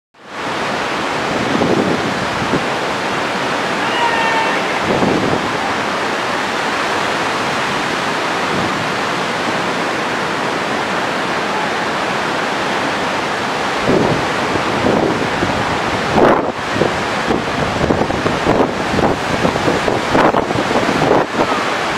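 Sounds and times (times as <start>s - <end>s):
waves breaking on beach: 0.2s - 21.9s
faint high-pitched tone: 3.7s - 5.0s.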